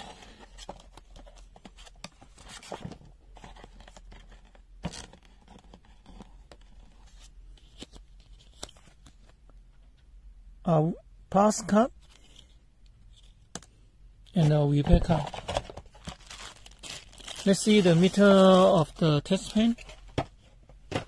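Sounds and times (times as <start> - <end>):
packaging rustling and crinkling: 14.4 - 20.3.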